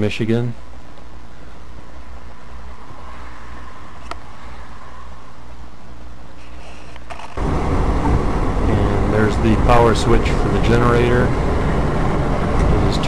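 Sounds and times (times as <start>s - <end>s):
car engine rumbling inside cabin: 7.4s - 13.0s.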